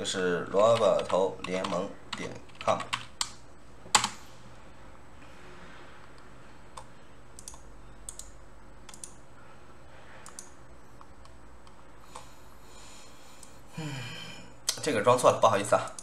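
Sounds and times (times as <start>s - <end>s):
low room hum: 0.0s - 16.0s
computer mouse clicks: 6.1s - 9.2s, 10.2s - 12.3s.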